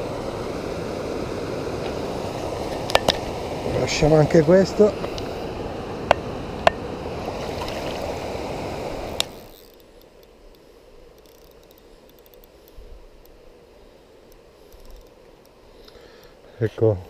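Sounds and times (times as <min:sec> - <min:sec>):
river water rushing: 0:00.0 - 0:09.5.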